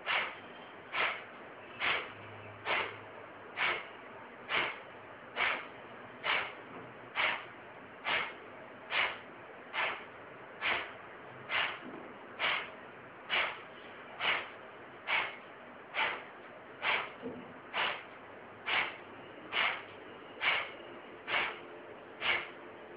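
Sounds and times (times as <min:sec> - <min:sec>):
forceful exhalations through nose: 0:05.4 - 0:05.6, 0:10.6 - 0:10.9, 0:11.5 - 0:11.8, 0:12.4 - 0:12.7, 0:13.3 - 0:13.6, 0:14.2 - 0:14.5, 0:15.1 - 0:15.4, 0:16.0 - 0:16.2, 0:17.7 - 0:18.0, 0:18.7 - 0:19.8, 0:20.4 - 0:20.7, 0:21.3 - 0:21.6, 0:22.2 - 0:22.5.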